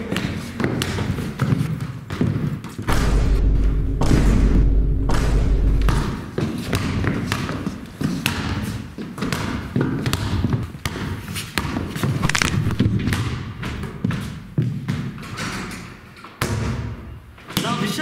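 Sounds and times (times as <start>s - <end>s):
basketball bouncing on hard floor: 0.1s - 2.9s, 5.1s - 15.4s
deep low boom: 2.9s - 6.2s, 12.2s - 13.5s.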